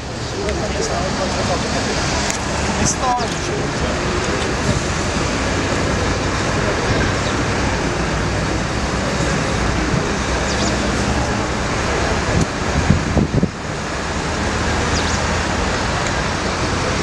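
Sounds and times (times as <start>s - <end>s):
low engine hum: 0.0s - 17.0s
road traffic noise: 0.0s - 17.0s.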